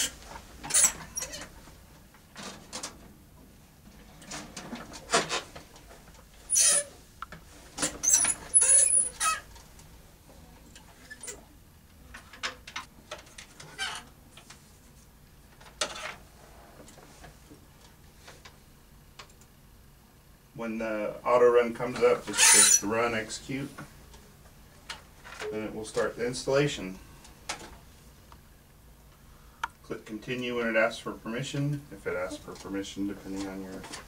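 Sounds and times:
short high squeaks: 6.5 - 6.9, 8.0 - 9.5, 22.3 - 22.9
scrapes: 22.2 - 22.9.

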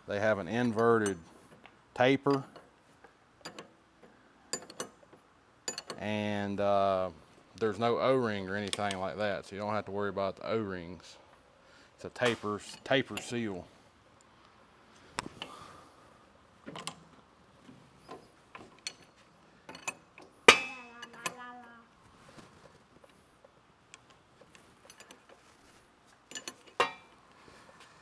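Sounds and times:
wrenches clinking on metal fittings: 5.7 - 6.0, 18.6 - 21.5, 26.3 - 27.1.

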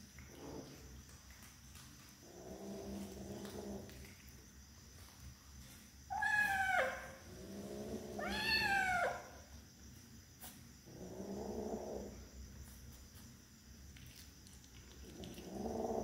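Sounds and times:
kitten yowling angrily: 6.1 - 7.2, 8.2 - 9.4.

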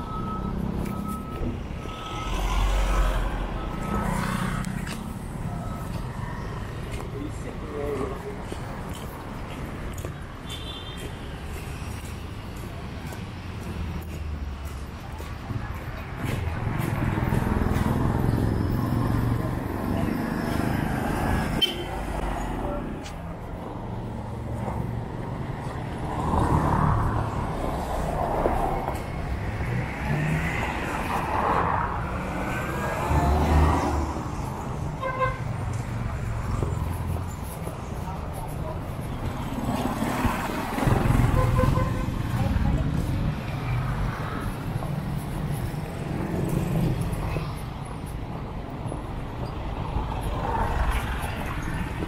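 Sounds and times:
traffic passing: 0.0 - 52.0.

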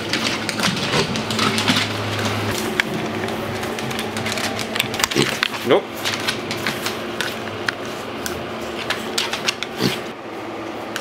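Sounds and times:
piglet grunt: 5.0 - 5.5, 9.7 - 10.1.

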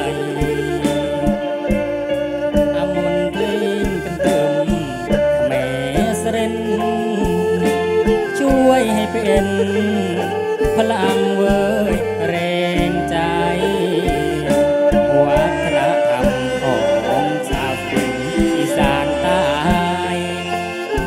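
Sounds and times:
bass: 0.0 - 21.0
drum kit beat: 0.0 - 21.0
electric guitar: 0.0 - 21.0
person singing: 0.0 - 21.0.

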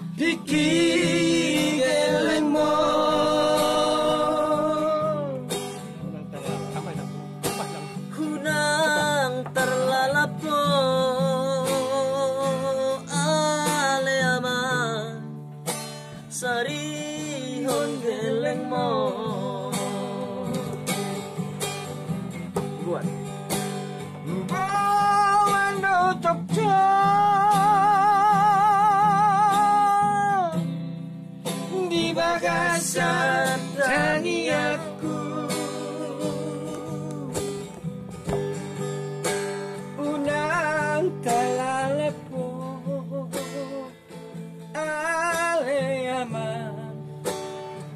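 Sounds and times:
man singing in high voice: 0.0 - 5.7, 7.9 - 15.3, 16.3 - 20.9, 24.3 - 30.7, 31.6 - 37.7, 39.9 - 44.0, 44.7 - 47.1
strummed acoustic guitar: 0.0 - 47.9.

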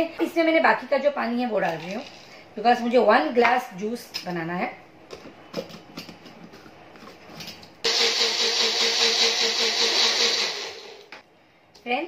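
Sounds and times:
blender motor whirring: 7.9 - 11.1.

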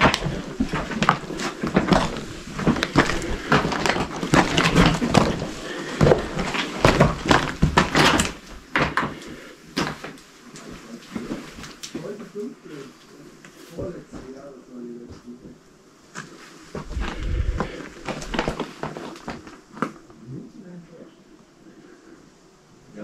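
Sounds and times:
footsteps crunching on stone rubble: 0.0 - 12.0, 16.2 - 20.0.

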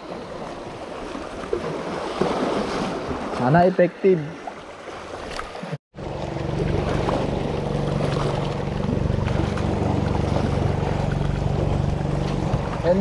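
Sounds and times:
water lapping at rocks: 0.0 - 13.0
boat engine humming: 4.4 - 13.0.

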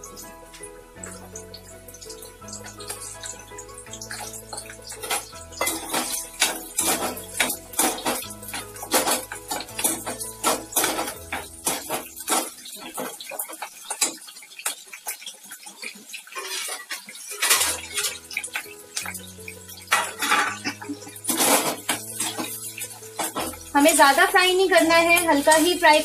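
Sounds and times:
background music with sustained notes: 0.0 - 13.6, 17.2 - 26.0
metal spatula scraping metal pan: 4.0 - 14.2, 16.3 - 18.5, 19.9 - 26.0.

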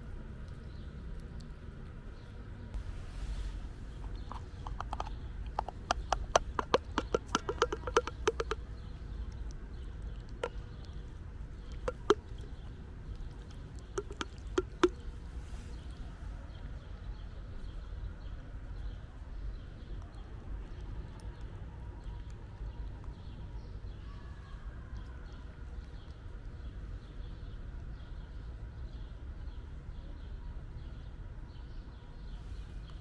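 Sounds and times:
low steady rumble: 0.0 - 33.0
cat crunching food: 3.9 - 15.2.

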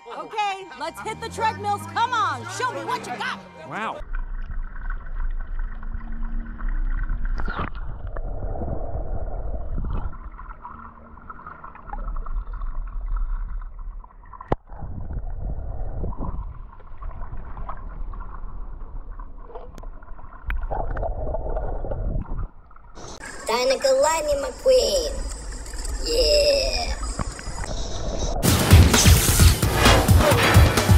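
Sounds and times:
underwater rumbling and gurgling: 4.0 - 28.4.

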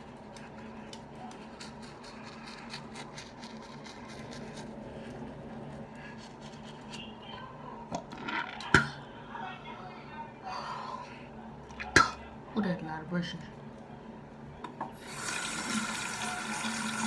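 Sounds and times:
toothbrush scrubbing teeth: 0.0 - 7.1.

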